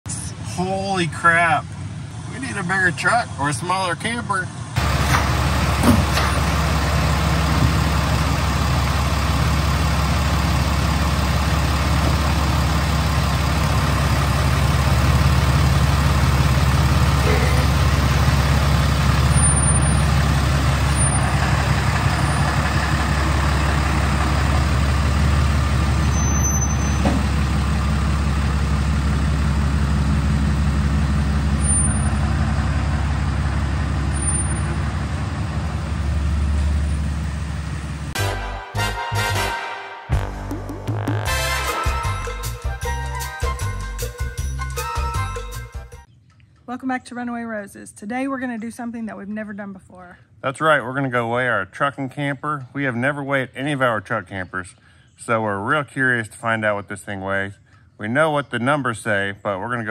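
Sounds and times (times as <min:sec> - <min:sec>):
pickup truck engine idling: 0:04.5 - 0:39.4.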